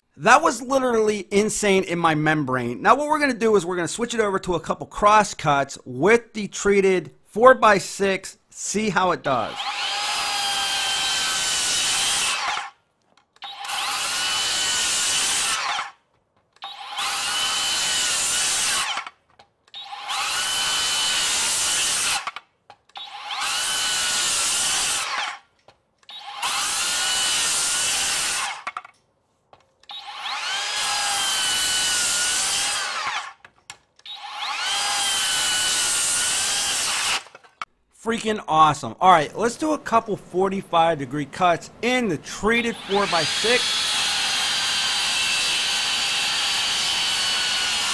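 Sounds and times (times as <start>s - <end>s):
circular saw cutting wood: 8.7s - 12.8s, 13.4s - 16.0s, 16.6s - 28.9s, 29.8s - 37.7s, 41.8s - 47.9s.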